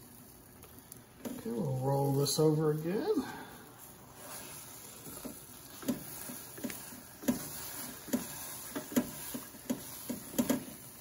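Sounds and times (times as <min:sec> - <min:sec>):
spatula tapping and scraping griddle: 0:04.0 - 0:11.0.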